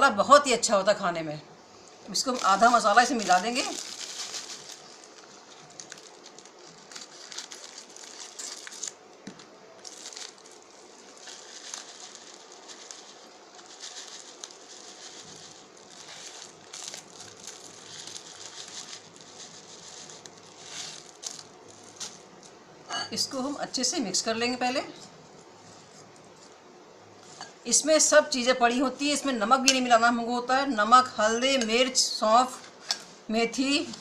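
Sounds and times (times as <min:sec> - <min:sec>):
foil packet crinkling: 0:02.1 - 0:22.6.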